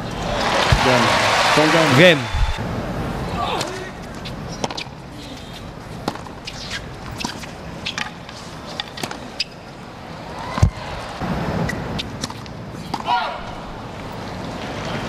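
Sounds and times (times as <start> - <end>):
tennis ball hit by racket: 6.0 - 8.2
shoe squeaks: 6.4 - 9.7.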